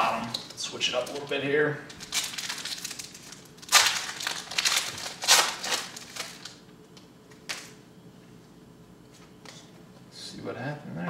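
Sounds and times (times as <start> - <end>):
plastic wrapper crinkling and tearing: 0.2 - 6.6.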